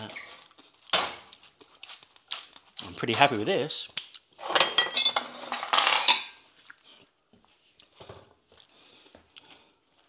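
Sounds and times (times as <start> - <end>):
kitchenware knocking and scraping: 4.4 - 6.4
plates clattering: 4.4 - 6.4.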